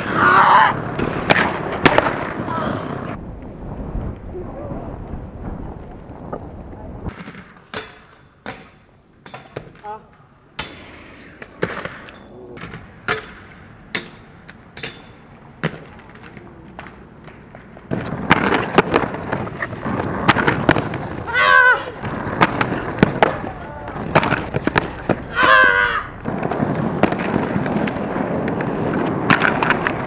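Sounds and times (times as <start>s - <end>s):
skateboard wheels rolling on rough ground: 0.0s - 9.0s, 10.7s - 30.0s
skateboard clacks: 10.6s - 25.3s, 26.2s - 30.0s.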